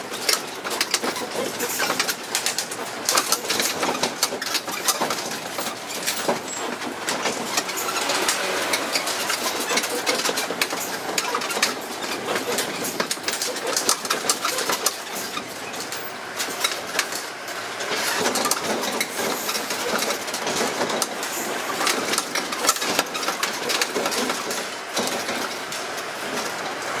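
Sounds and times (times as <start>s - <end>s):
carriages rattling: 0.0s - 27.0s
road train engine running: 0.0s - 27.0s.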